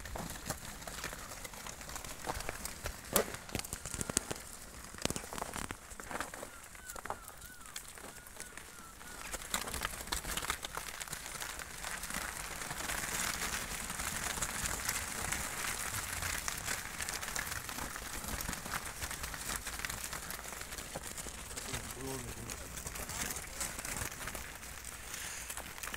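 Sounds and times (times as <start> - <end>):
sheep hooves crunching on snow: 0.0 - 25.9.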